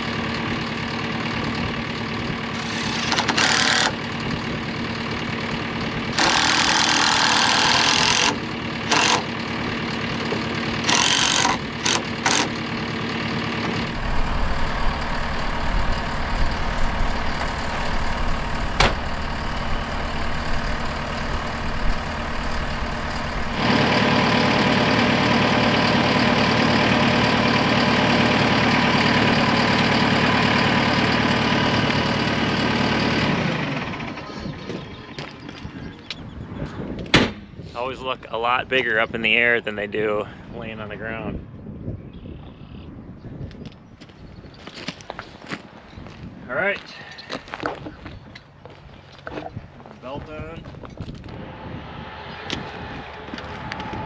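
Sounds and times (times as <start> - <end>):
diesel engine running: 0.0 - 43.1, 44.0 - 54.0
impact driver bursts: 2.6 - 4.0, 6.2 - 9.3, 10.8 - 12.6.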